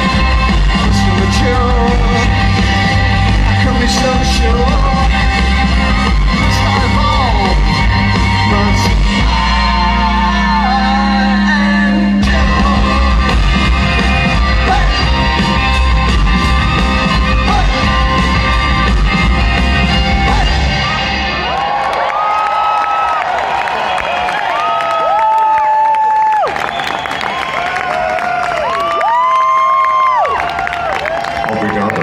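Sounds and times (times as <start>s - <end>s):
person singing: 0.0s - 5.5s, 6.3s - 15.4s
heavy bass: 0.0s - 21.8s
electric guitar: 0.0s - 21.9s.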